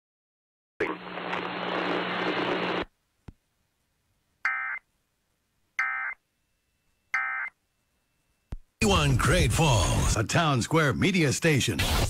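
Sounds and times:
radio hiss: 0:00.8 - 0:02.9, 0:11.5 - 0:12.0.

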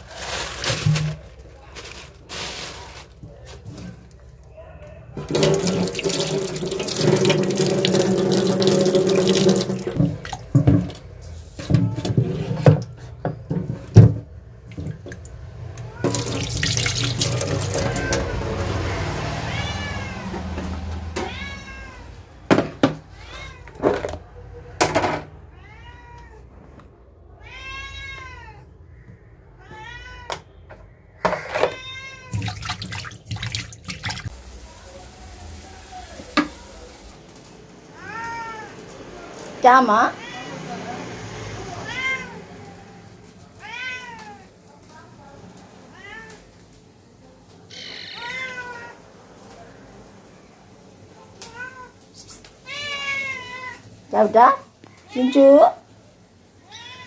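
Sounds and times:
tap water running into steel bowl: 0:05.2 - 0:11.0, 0:16.0 - 0:18.7, 0:32.3 - 0:34.4
bowl clattering against sink: 0:05.2 - 0:15.2
cat meowing: 0:15.8 - 0:16.8, 0:17.5 - 0:22.4, 0:23.0 - 0:23.9, 0:25.5 - 0:26.6, 0:27.2 - 0:30.7, 0:31.4 - 0:32.8, 0:37.9 - 0:38.9, 0:40.1 - 0:44.6, 0:45.9 - 0:46.5, 0:47.7 - 0:49.1, 0:52.6 - 0:53.9, 0:56.6 - 0:57.0.

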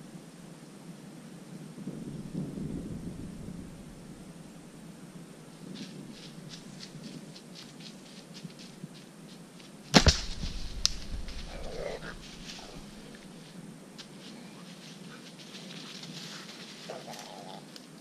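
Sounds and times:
footsteps in dry leaves: 0:05.6 - 0:17.8
arrow strike: 0:09.9 - 0:12.1
bow string crack: 0:09.9 - 0:13.3
animal cry: 0:11.4 - 0:13.1.

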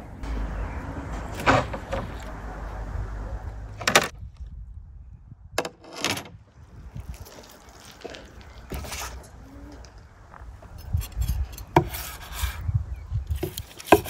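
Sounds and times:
metal skewers scraping: 0:10.7 - 0:12.6.

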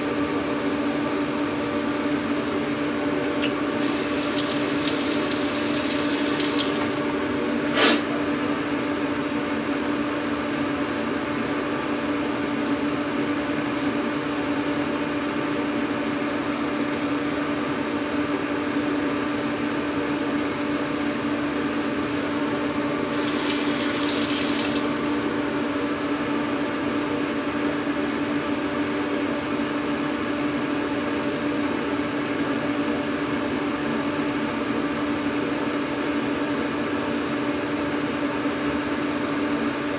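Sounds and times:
low electric hum: 0:00.0 - 0:07.6, 0:19.9 - 0:26.0
tap running: 0:03.4 - 0:07.0, 0:23.1 - 0:25.1.

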